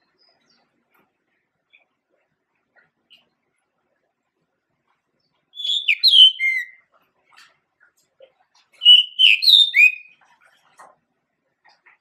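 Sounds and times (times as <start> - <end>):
bird singing whistled notes: 5.5 - 6.8, 8.8 - 10.2.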